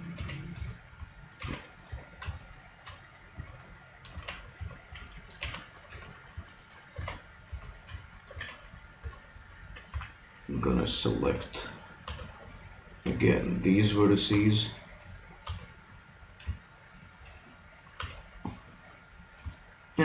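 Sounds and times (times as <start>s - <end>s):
keyboard and mouse clicks: 0.0s - 10.2s, 11.4s - 12.4s, 15.4s - 15.7s, 16.4s - 18.8s.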